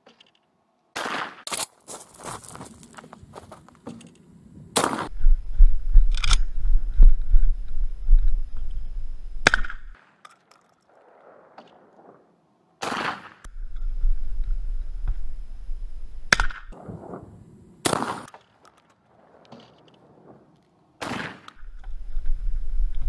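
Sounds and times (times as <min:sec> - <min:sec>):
shotgun shots: 0:01.0 - 0:01.5, 0:04.8 - 0:05.2, 0:09.4 - 0:10.0, 0:12.8 - 0:13.5, 0:17.8 - 0:18.4, 0:21.0 - 0:21.6
low microphone rumble: 0:04.4 - 0:09.9, 0:13.5 - 0:17.8, 0:21.6 - 0:23.0.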